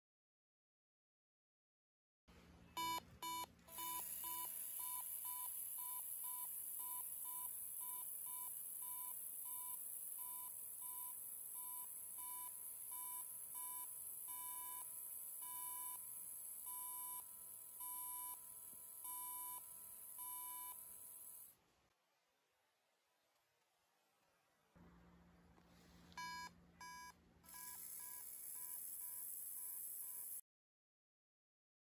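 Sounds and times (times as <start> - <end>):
electronic buzzer beeping: 2.8 - 21.5, 26.2 - 30.4.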